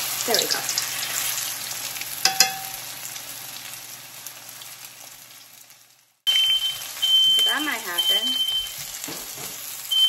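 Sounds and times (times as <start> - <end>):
meat sizzling in hot oil: 0.0 - 10.0
smoke alarm beeping: 6.3 - 8.8.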